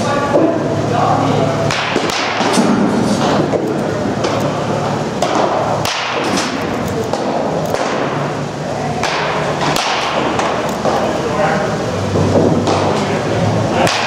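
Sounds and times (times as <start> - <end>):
steady low hum: 0.0 - 14.0
baseball bat cracks: 1.7 - 3.5, 5.2 - 8.2, 9.0 - 11.0.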